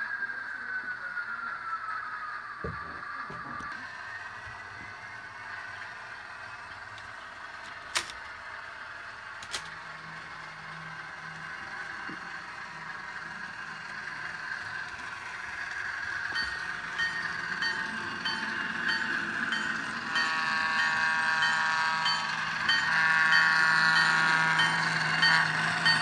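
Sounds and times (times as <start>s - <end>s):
model train drive hum: 0.0s - 26.0s
diesel engine sound effect: 3.4s - 26.0s
wheels clicking over rail joints: 13.6s - 26.0s.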